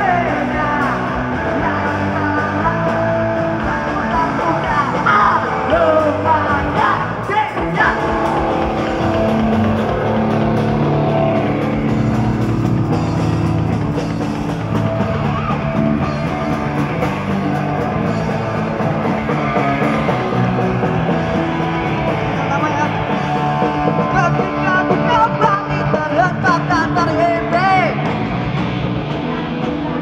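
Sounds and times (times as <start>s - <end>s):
punk rock band playing live: 0.0s - 30.0s.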